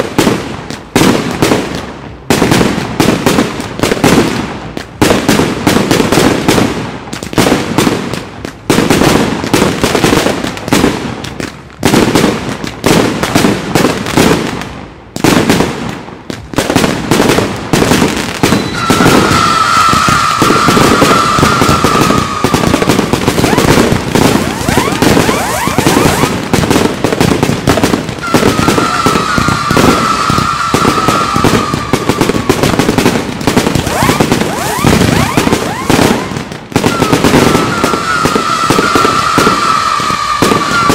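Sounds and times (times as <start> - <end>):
fireworks crackling: 0.0 - 40.9
falling whistling tone: 18.4 - 22.8, 24.4 - 26.3, 28.2 - 32.1
fireworks shells bursting: 18.4 - 40.9.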